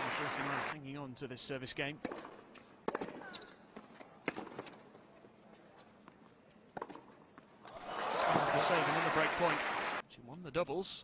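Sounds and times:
tennis ball pops: 2.0s - 3.2s.

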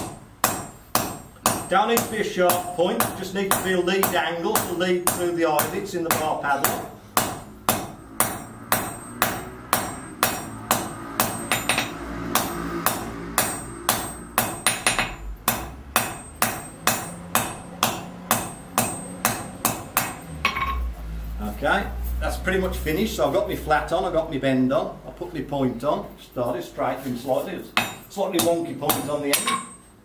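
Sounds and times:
hammer clanging on anvil: 0.0s - 20.9s, 27.7s - 30.0s.

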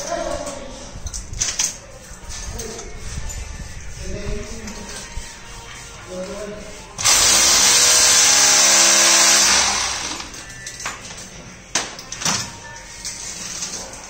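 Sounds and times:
power tool motor running: 7.0s - 10.4s.

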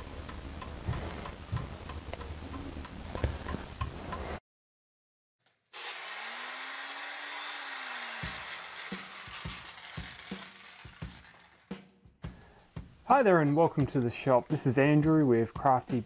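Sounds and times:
intro music with low thumps: 0.0s - 4.2s
mantel clock ticking: 0.0s - 4.2s
high rising and falling whistle: 6.0s - 10.7s.

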